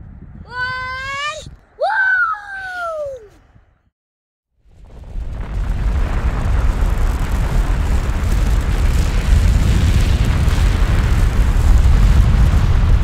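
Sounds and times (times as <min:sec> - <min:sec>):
deep rumble: 0:04.7 - 0:13.0.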